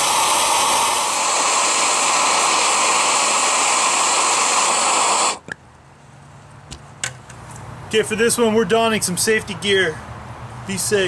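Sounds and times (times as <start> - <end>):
gas torch hissing: 0.0 - 5.6.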